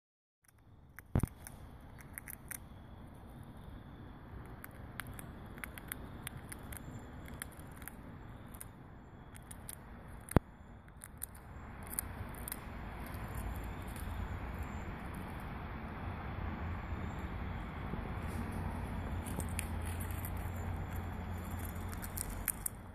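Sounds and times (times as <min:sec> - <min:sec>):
chipmunk cracking peanut shells: 0:00.4 - 0:15.6, 0:18.2 - 0:22.9
low background noise: 0:00.4 - 0:22.9.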